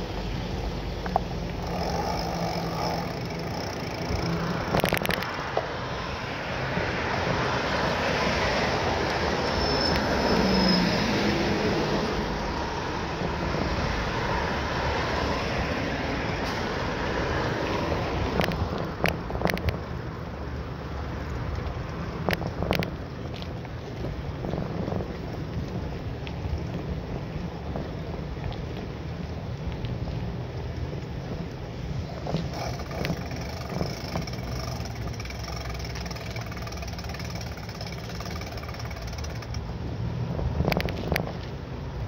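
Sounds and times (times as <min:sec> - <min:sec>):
wind noise on microphone: 0:00.0 - 0:42.0
bicycle clicks and knocks: 0:00.9 - 0:05.8, 0:18.3 - 0:19.8, 0:21.4 - 0:26.8, 0:32.1 - 0:39.7.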